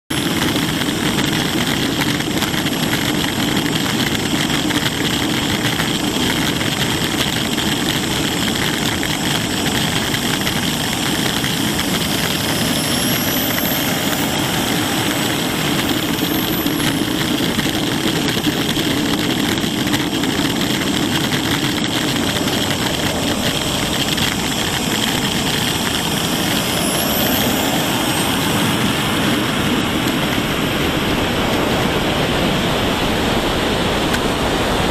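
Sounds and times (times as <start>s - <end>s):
model jet engine hiss and whine: 0.1s - 34.9s.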